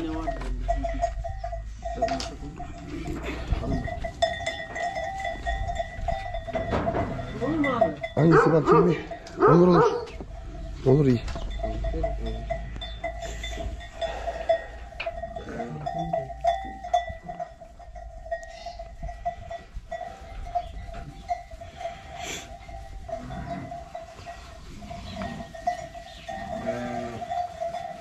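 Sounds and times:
knocks and clatters: 6.1s - 7.4s
livestock bleating: 21.6s - 27.6s.

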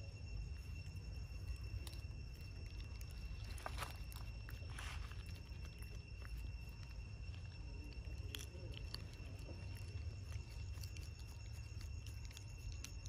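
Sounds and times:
high-pitched whine: 0.0s - 13.0s.

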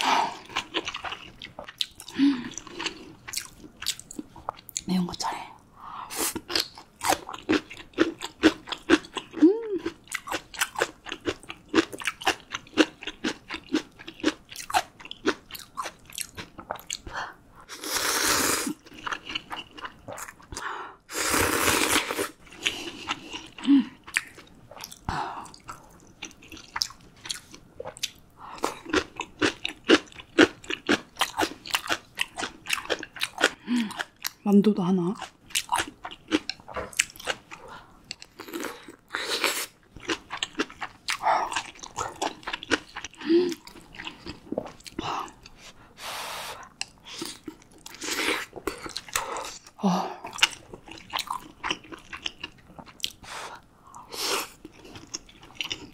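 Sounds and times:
chewing with wet mouth clicks: 0.5s - 4.9s, 6.4s - 17.1s, 23.4s - 34.4s, 39.9s - 45.6s, 50.3s - 53.2s.

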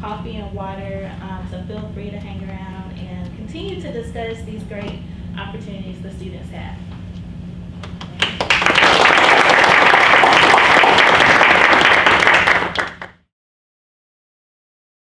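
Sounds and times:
small audience applauding: 7.8s - 13.3s.

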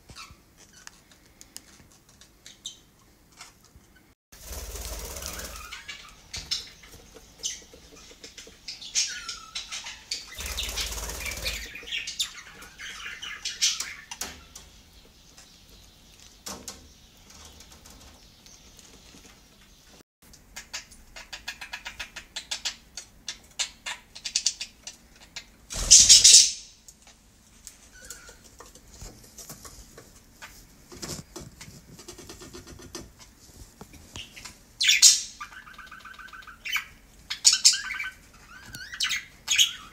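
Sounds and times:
wings flapping: 4.4s - 7.7s, 10.3s - 12.0s, 25.7s - 26.4s
budgerigars chirping: 5.2s - 16.0s, 20.6s - 26.7s, 34.2s - 39.9s.

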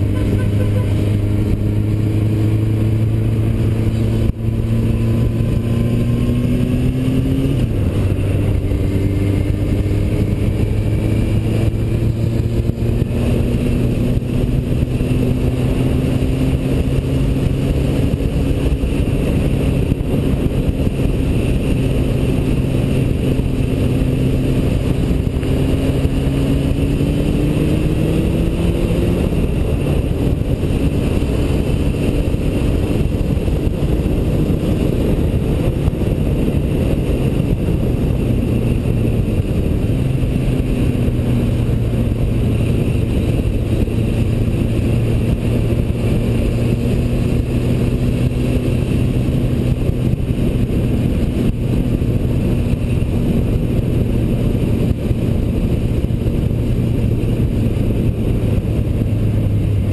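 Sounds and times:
motorcycle engine running: 0.0s - 59.9s
road noise: 0.0s - 59.9s
wind noise: 0.0s - 59.9s.

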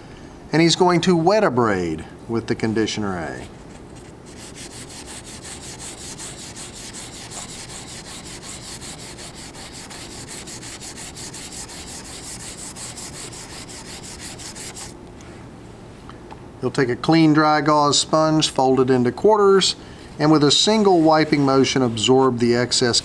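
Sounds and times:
wet sanding metal: 4.3s - 15.0s.

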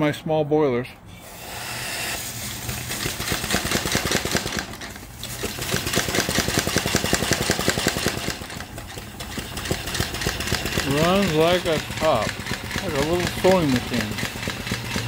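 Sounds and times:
steam hiss: 1.2s - 4.2s
steam engine chuffing: 2.2s - 15.0s.

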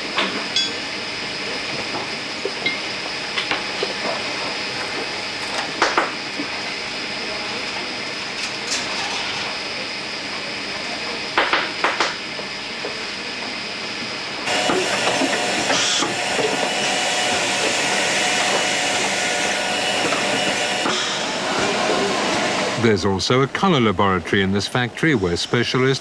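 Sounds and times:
machine whine: 0.0s - 26.0s
machinery hissing: 14.3s - 26.0s.

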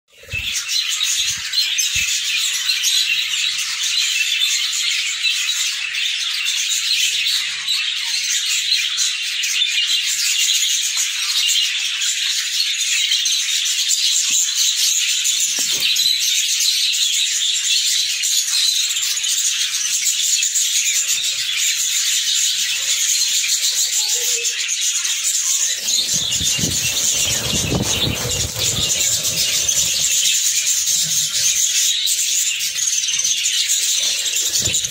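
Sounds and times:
budgerigars chattering and chirping: 18.0s - 34.9s
low rubbing rumble: 25.6s - 31.4s.

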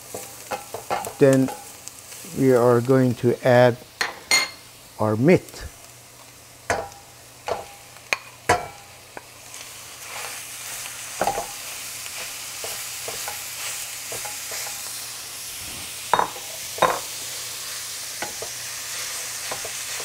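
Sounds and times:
meat sizzling in a frying pan: 0.0s - 20.0s
spoon scraping a pan: 0.1s - 1.8s, 10.0s - 14.9s.

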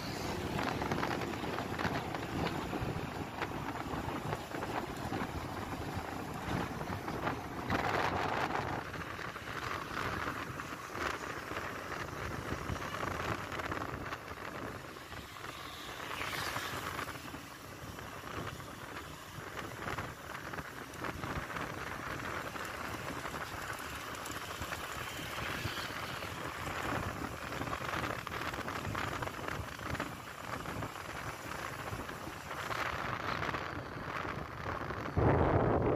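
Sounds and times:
road noise: 0.0s - 35.9s
wind buffeting microphone: 0.0s - 35.9s.

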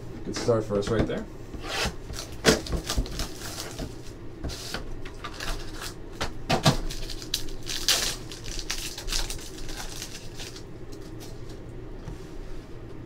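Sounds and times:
foil wrapper crinkling and tearing: 2.1s - 6.0s, 6.6s - 11.4s.

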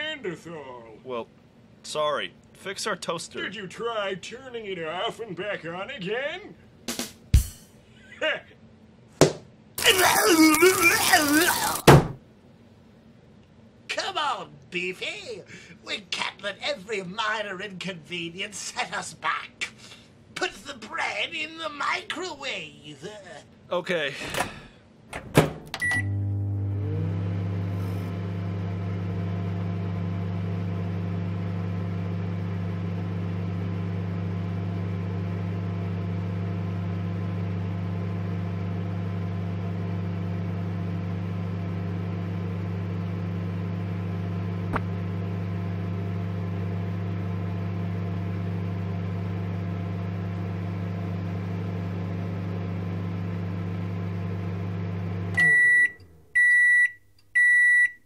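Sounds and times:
microwave oven humming: 9.8s - 12.2s, 25.2s - 58.0s
microwave click: 25.2s - 26.2s
short beep: 25.8s - 26.2s, 55.4s - 58.0s.

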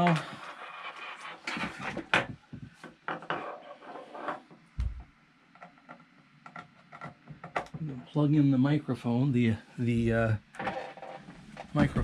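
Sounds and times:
dull low thump: 4.8s - 5.1s
clicks and knocks at a desk: 5.6s - 7.8s.

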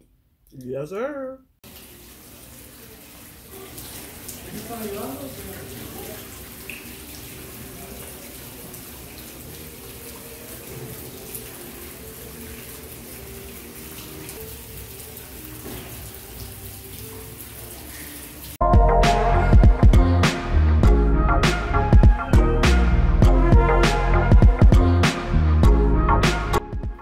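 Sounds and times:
waterfall splashing into pool: 1.6s - 18.3s.

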